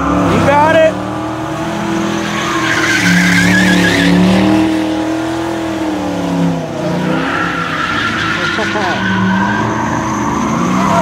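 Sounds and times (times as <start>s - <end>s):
car engine at high revs: 0.0s - 11.0s
tyres squealing: 1.9s - 4.7s, 7.0s - 11.0s.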